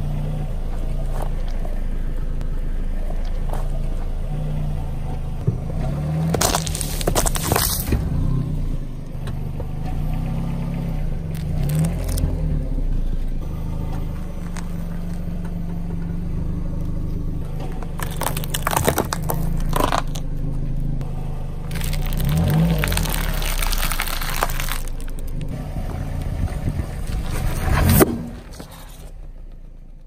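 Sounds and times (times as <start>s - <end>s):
car engine droning: 0.0s - 30.0s
tyre crushing hard candies: 6.2s - 8.0s, 11.3s - 12.3s, 17.8s - 20.2s, 21.7s - 25.5s.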